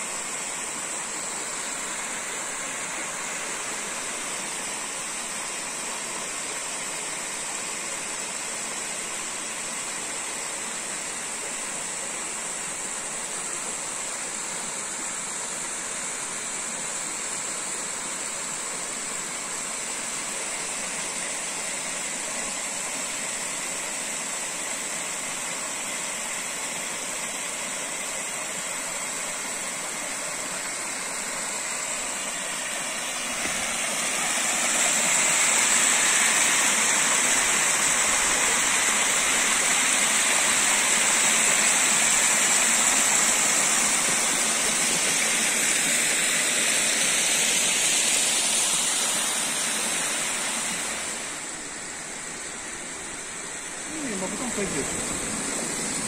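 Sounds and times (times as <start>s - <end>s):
river rushing over rocks: 25.9s - 56.0s.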